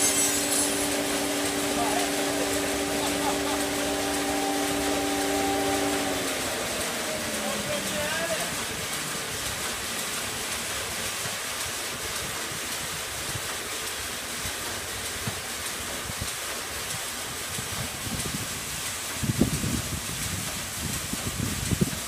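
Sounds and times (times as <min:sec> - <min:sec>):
band saw cutting a log: 0:00.0 - 0:09.7.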